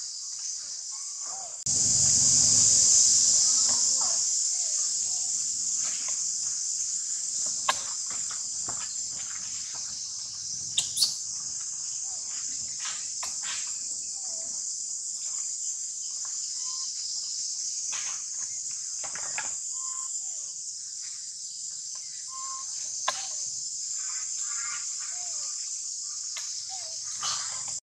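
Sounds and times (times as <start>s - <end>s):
high-pitched insect chorus: 0.0s - 27.8s
short chirps: 10.8s - 11.2s.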